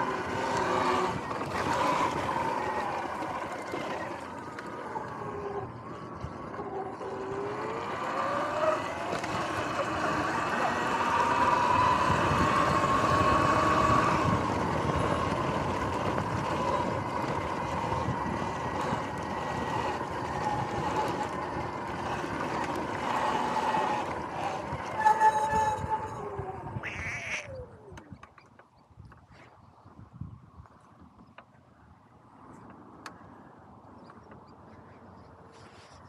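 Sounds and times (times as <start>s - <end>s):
electric motor whine: 0.0s - 26.8s
brakes squealing: 0.0s - 27.9s
tyre and wind noise: 0.0s - 31.8s.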